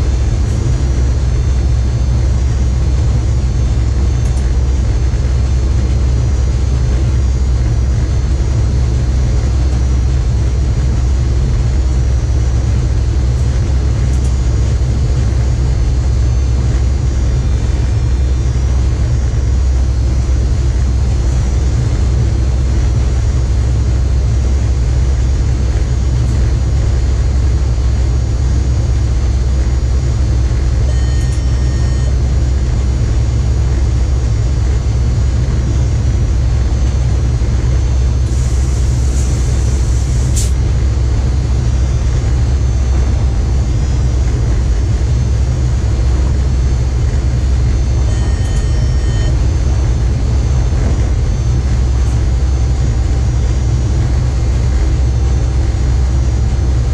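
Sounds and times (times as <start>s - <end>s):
train rumbling at speed: 0.0s - 56.9s
high-pitched whines: 30.6s - 56.5s
short electronic tone: 30.8s - 32.4s, 47.4s - 52.7s.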